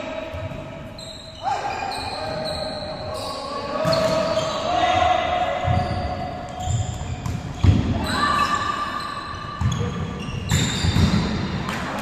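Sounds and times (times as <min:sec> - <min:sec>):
shoes squeaking on wooden floor: 0:05.6 - 0:11.2.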